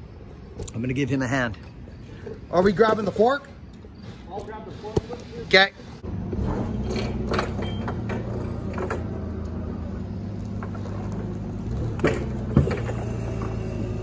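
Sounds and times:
forklift engine running: 6.0s - 14.0s.

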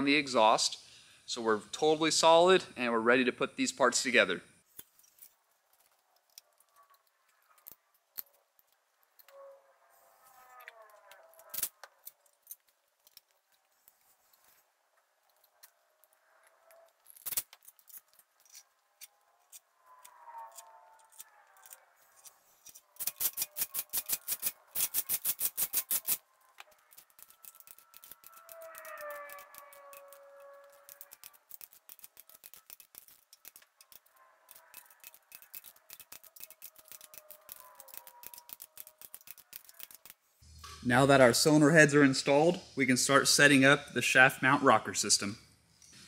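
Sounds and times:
ratchet wrench clicking rapidly: 23.0s - 26.2s, 26.9s - 40.2s.

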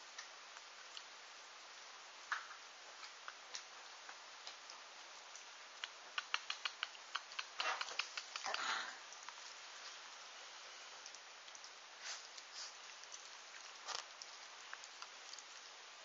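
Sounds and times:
steady hiss: 0.0s - 16.0s
puppy claws scrabbling: 6.2s - 8.8s.

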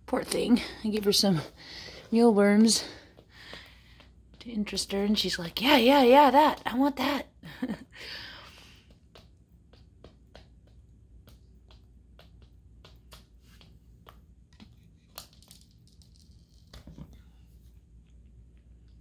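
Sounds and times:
hen beak tapping: 8.6s - 14.4s.

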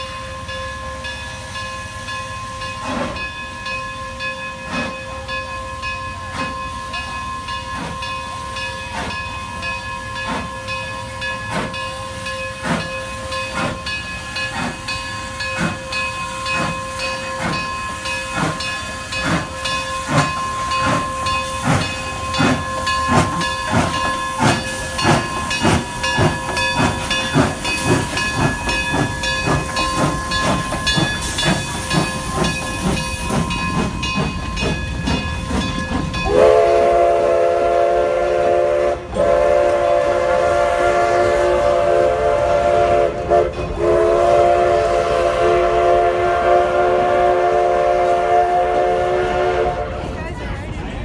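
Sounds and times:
chime steam whistle blasts: 0.0s - 50.1s
steam locomotive exhaust chuffs: 0.0s - 50.2s
steam hissing: 0.3s - 49.8s.

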